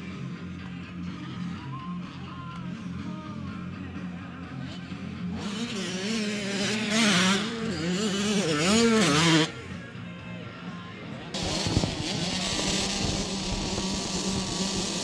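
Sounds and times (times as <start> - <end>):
dirt bike engine revving: 5.2 - 9.6, 11.4 - 15.0.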